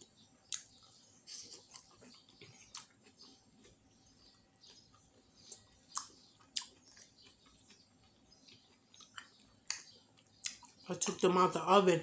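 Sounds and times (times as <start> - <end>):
chewing: 0.1 - 11.2
wet mouth clicks and smacks: 9.0 - 10.8.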